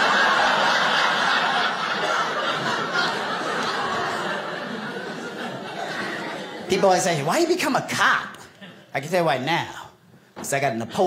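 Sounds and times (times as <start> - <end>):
audience laughing: 0.0 - 7.3.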